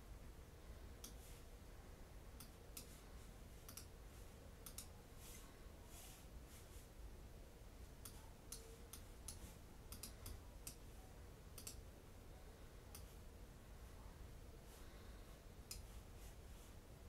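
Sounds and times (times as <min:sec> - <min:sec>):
faint sharp clicks: 0:01.0 - 0:01.2, 0:02.4 - 0:02.9, 0:03.6 - 0:03.9, 0:04.6 - 0:04.9, 0:08.0 - 0:10.8, 0:11.5 - 0:11.9, 0:15.7 - 0:15.9.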